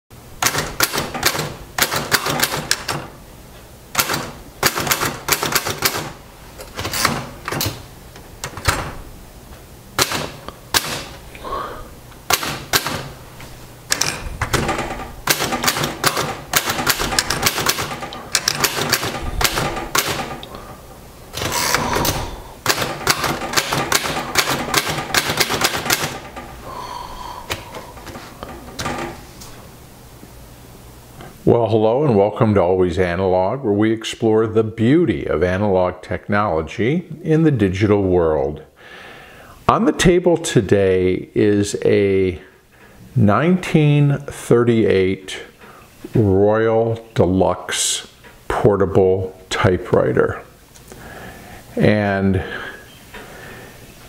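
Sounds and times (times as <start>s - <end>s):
typewriter keystroke clacks: 0.4s - 3.1s, 3.9s - 6.2s, 12.3s - 13.1s, 13.9s - 20.5s, 21.4s - 26.4s
typewriter carriage return: 0.4s - 3.2s, 3.9s - 7.8s, 12.3s - 13.1s, 13.9s - 20.5s, 21.3s - 26.5s.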